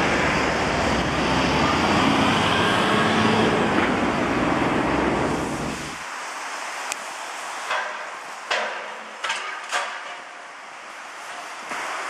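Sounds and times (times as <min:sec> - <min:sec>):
sharp metal knocks: 0:07.7 - 0:10.2.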